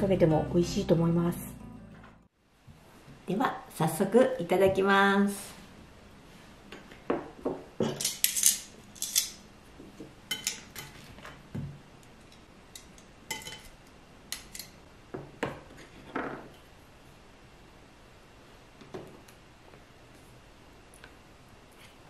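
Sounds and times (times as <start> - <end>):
metal tongs clinking on ceramic: 10.3 - 11.0.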